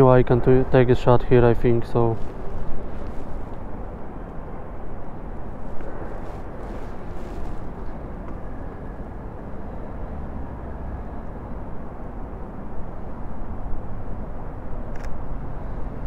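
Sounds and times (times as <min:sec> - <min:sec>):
wind blowing across microphone: 0:00.0 - 0:09.6.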